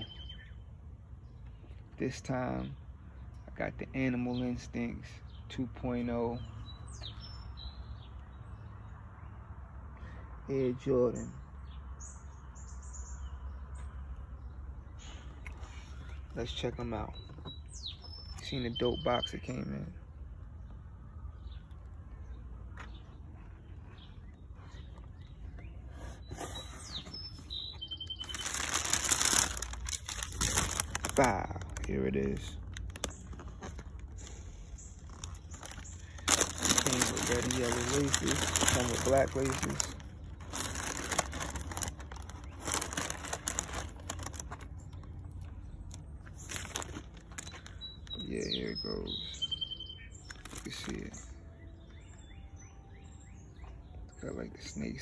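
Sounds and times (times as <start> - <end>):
bird chirping: 0.0 - 10.2, 11.0 - 55.0
tissue paper crinkling: 27.0 - 31.9, 35.0 - 44.7, 46.4 - 47.8.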